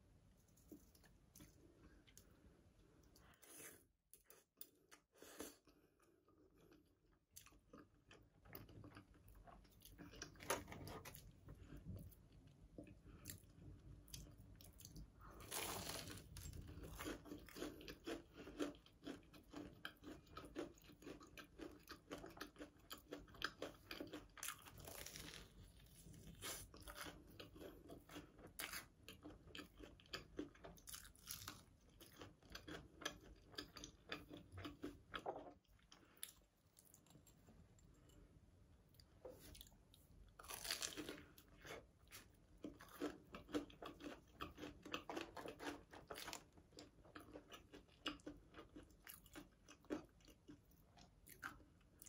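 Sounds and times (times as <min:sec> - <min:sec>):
crunching and chewing: 0:03.0 - 0:38.3, 0:38.9 - 0:52.0.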